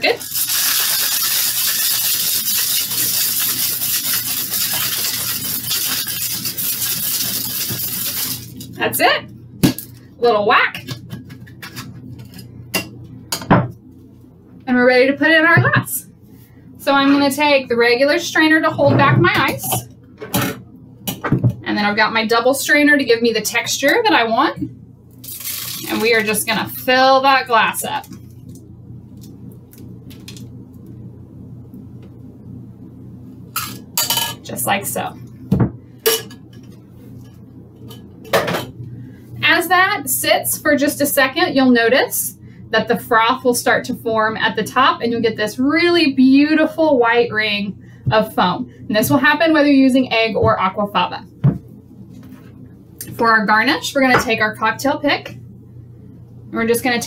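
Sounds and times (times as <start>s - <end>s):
ice rattling in cocktail shaker: 0.1s - 8.8s, 25.2s - 26.3s.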